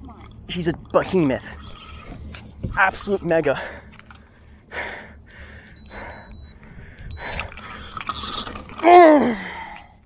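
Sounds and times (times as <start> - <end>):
remote control beeping: 5.7 - 7.4
man crying out: 8.8 - 9.5.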